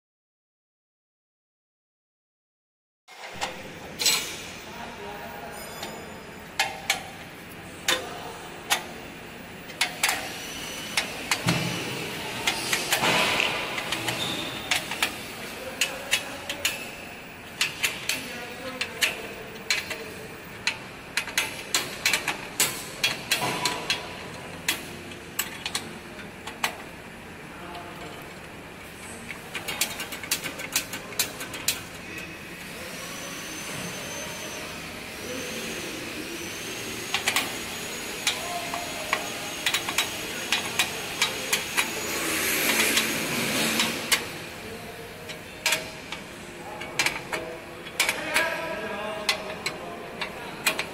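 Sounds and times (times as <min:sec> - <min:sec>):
hand tool clicking on metal bolts: 0:29.5 - 0:31.8, 0:49.3 - 0:50.9
hiss with high whine: 0:32.6 - 0:44.1.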